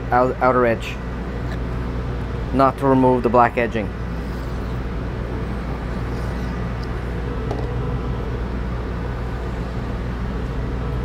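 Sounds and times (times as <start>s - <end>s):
motor humming: 1.0s - 11.0s.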